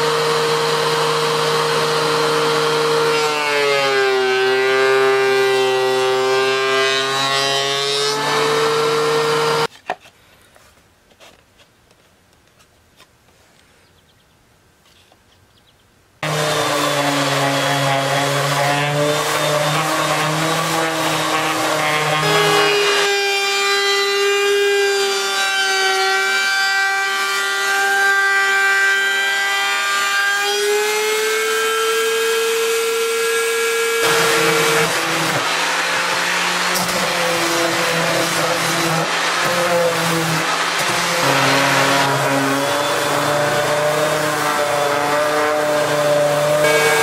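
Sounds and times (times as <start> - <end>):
electric router whining: 0.0 - 9.7, 16.2 - 47.0
orbital sander buzzing: 0.0 - 9.7, 16.2 - 47.0.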